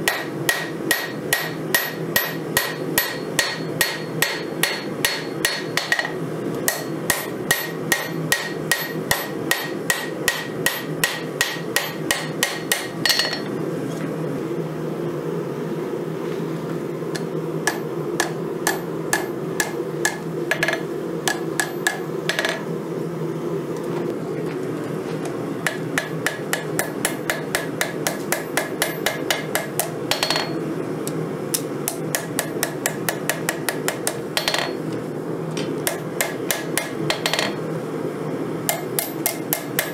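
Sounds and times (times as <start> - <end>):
hammer ringing on anvil: 0.0 - 13.5, 17.7 - 22.6, 25.7 - 30.6, 32.2 - 34.8
steady low hum: 0.0 - 39.9.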